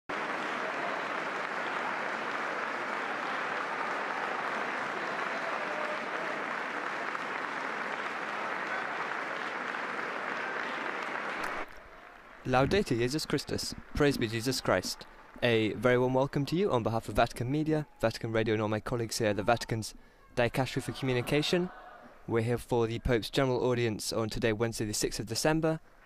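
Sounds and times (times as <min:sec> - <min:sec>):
crowd applauding: 0:00.1 - 0:17.8.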